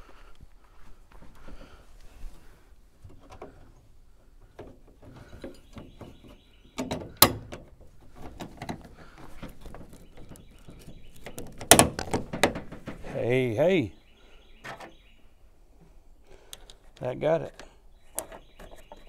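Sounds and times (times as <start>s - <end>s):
metal clicks and knocks: 3.0s - 3.8s, 4.5s - 13.1s.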